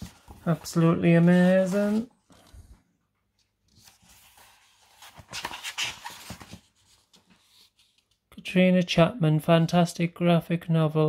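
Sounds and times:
magazine pages turning: 0:00.0 - 0:02.7, 0:03.4 - 0:08.2.

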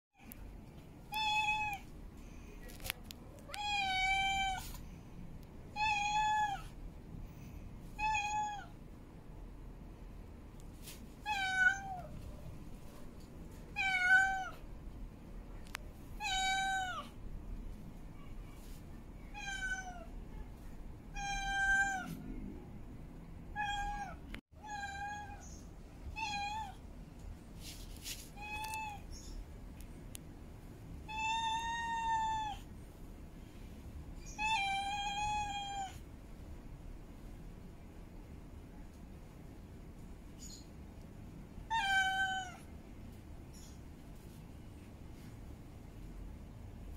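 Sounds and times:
cat meowing: 0:01.1 - 0:01.9, 0:03.5 - 0:04.7, 0:05.8 - 0:06.8, 0:08.0 - 0:08.8, 0:11.2 - 0:12.1, 0:13.7 - 0:14.6, 0:16.2 - 0:17.1, 0:19.3 - 0:20.1, 0:21.1 - 0:22.2, 0:23.6 - 0:26.8, 0:31.1 - 0:32.7, 0:34.2 - 0:36.0, 0:41.7 - 0:42.7.

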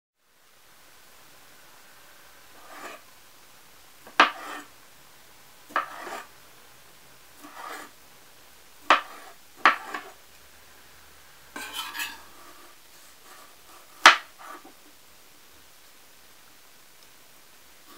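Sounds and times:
knife chopping on plastic board: 0:04.0 - 0:04.7, 0:05.7 - 0:06.3, 0:07.4 - 0:07.9, 0:08.8 - 0:10.2, 0:14.0 - 0:14.7.

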